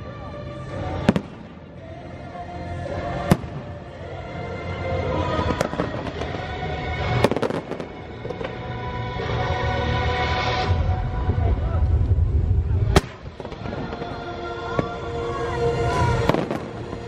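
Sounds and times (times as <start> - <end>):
music: 0.0 - 17.0
fireworks booming and crackling: 0.8 - 2.0, 3.0 - 4.2, 4.9 - 8.6, 12.0 - 17.0.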